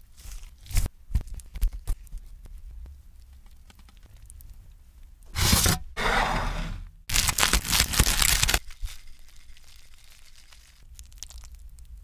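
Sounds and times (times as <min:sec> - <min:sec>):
crunching crispy bread: 0:07.1 - 0:12.0.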